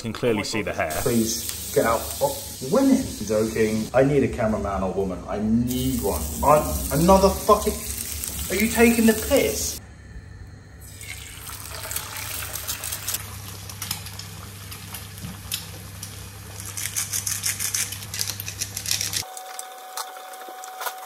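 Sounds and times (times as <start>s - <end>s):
eggs sizzling in a frying pan: 0.9s - 3.9s, 5.7s - 9.8s, 10.8s - 16.8s.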